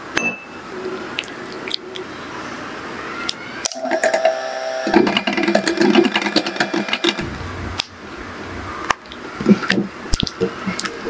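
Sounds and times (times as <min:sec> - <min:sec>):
electric hand mixer humming: 0:03.8 - 0:07.3.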